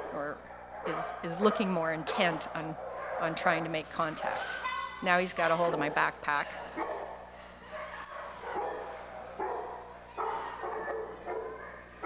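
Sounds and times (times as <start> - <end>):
dog barking: 0.4 - 3.4, 4.5 - 5.0, 6.8 - 12.0.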